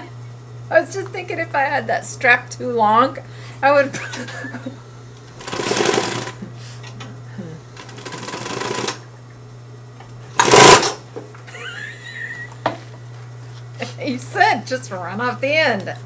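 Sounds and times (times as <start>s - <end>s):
steady low hum: 0.0s - 16.0s
sewing machine stitching: 5.4s - 6.4s, 7.8s - 9.0s, 10.4s - 11.0s.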